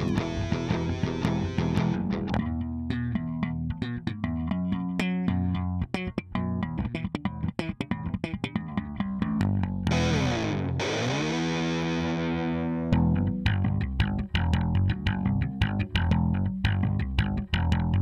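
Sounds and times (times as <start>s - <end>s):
rock music: 0.0s - 2.2s, 9.9s - 13.4s
electric guitar: 0.0s - 16.2s
bass guitar: 0.0s - 18.0s.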